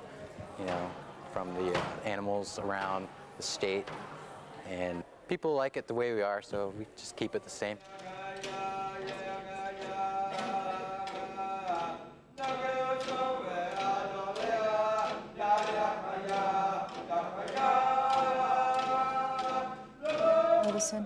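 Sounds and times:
group singing a chant: 7.2s - 21.0s
frame drums beating: 7.8s - 21.0s.

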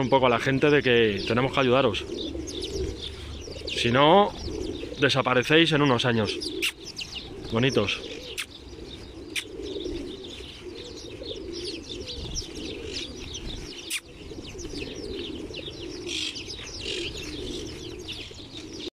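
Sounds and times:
pigeons cooing: 0.0s - 18.9s
sparrows chirping: 0.0s - 18.9s
wings fluttering: 5.7s - 18.9s.

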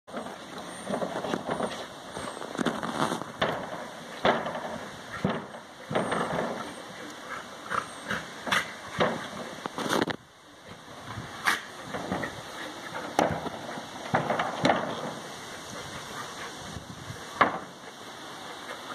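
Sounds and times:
dogs wrestling: 0.2s - 10.0s, 10.7s - 18.9s.

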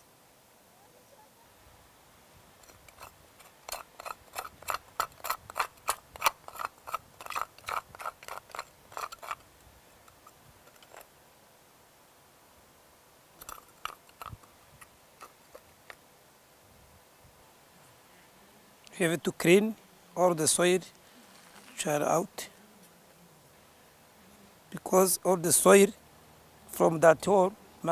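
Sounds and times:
metal tools scraping gravelly soil: 2.6s - 11.1s, 13.4s - 15.7s, 19.5s - 22.5s.

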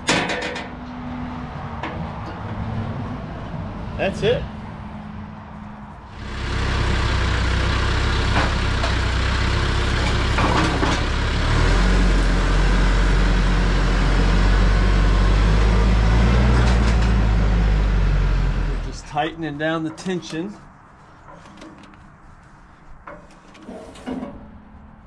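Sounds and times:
tractor engine running: 0.0s - 4.0s, 4.6s - 20.6s.

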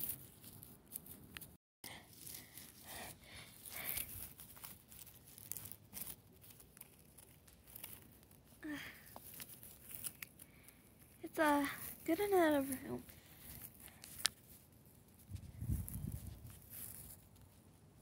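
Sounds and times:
dry grass crackling and rustling: 0.0s - 18.0s.

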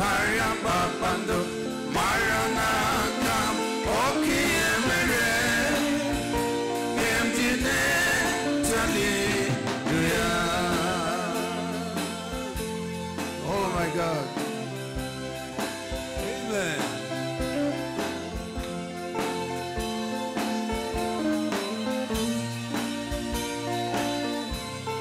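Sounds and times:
person singing with vibrato: 0.0s - 15.1s
gospel band playing: 0.0s - 25.0s.

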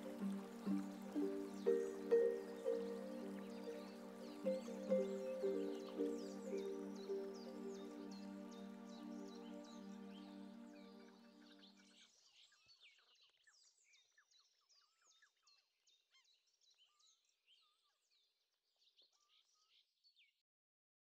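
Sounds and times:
soft music note: 0.0s - 10.6s
birds chirping and twittering: 0.0s - 11.7s.

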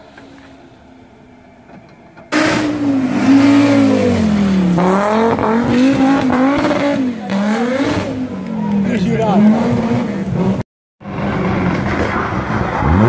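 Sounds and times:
rally car engine revving: 2.3s - 13.0s.

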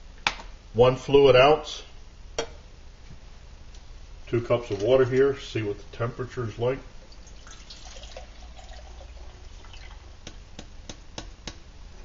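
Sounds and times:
water pouring into pot: 7.1s - 10.1s.

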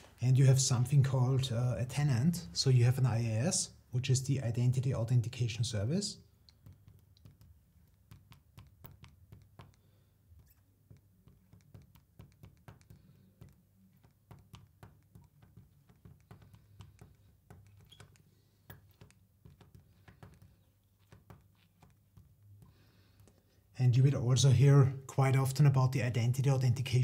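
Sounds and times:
marker tapping on glass: 6.5s - 23.3s.

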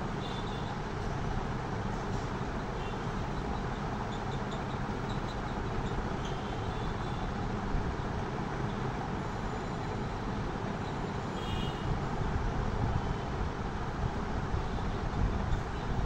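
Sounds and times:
steady background rumble and hiss: 0.0s - 16.0s.

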